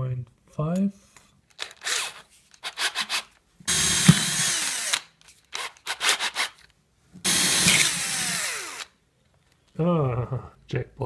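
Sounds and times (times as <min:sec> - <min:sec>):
power drill drilling into wood: 0:03.7 - 0:06.5, 0:07.2 - 0:08.9.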